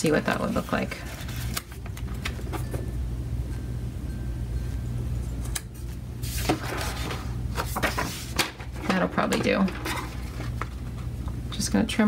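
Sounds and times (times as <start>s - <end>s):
paper rustling: 0.0s - 2.6s, 6.2s - 11.1s
steady low hum: 0.0s - 12.0s.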